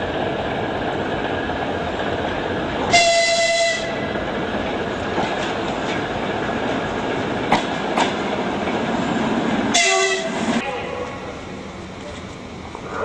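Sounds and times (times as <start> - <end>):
rumble of train wheels on rail: 0.0 - 13.0
wheels clacking over rail joint: 0.9 - 8.9.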